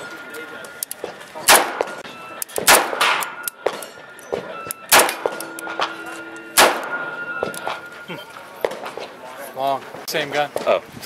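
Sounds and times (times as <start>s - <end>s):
pistol shots: 1.4s - 2.0s, 2.6s - 3.8s, 4.9s - 5.6s, 6.6s - 7.6s.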